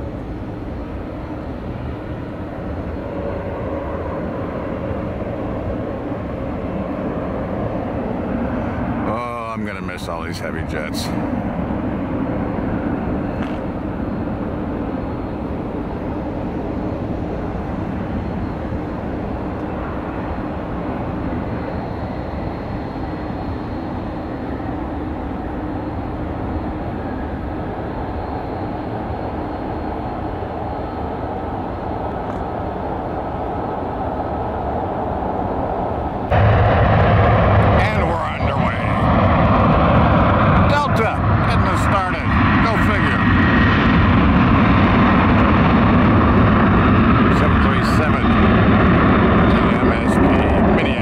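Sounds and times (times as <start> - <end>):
jet engines rumbling: 0.0 - 51.0.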